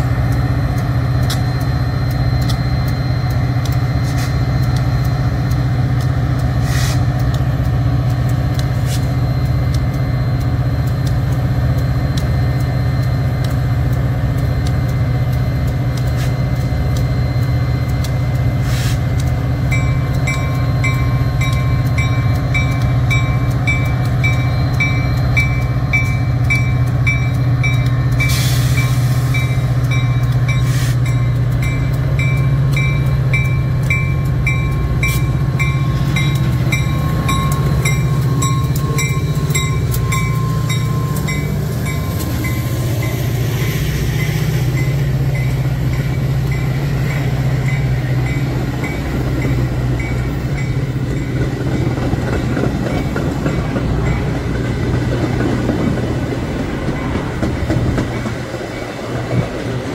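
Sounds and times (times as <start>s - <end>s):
train passing with low drone: 0.0s - 59.9s
regular high ringing: 19.7s - 43.4s.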